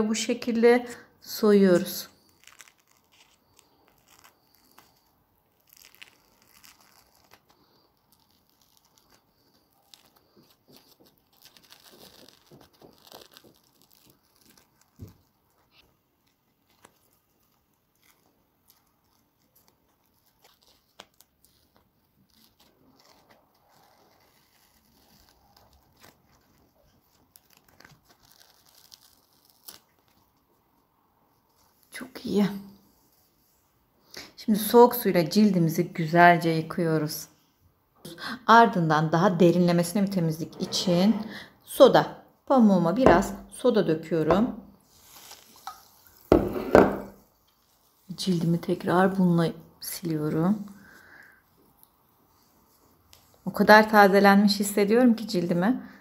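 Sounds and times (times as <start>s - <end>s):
napkin mask crackling and tearing: 1.9s - 32.0s, 44.8s - 48.8s.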